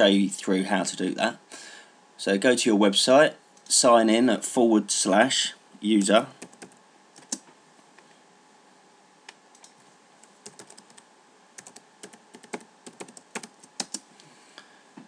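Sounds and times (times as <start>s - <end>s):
typing on computer keyboard: 6.4s - 7.4s, 10.4s - 11.0s, 11.6s - 14.0s.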